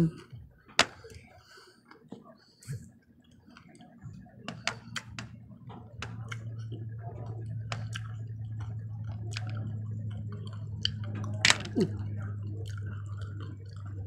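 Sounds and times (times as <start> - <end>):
low hum: 2.6 - 14.0
chewing candy: 7.3 - 14.0
chopsticks clicking on candies: 10.2 - 13.9.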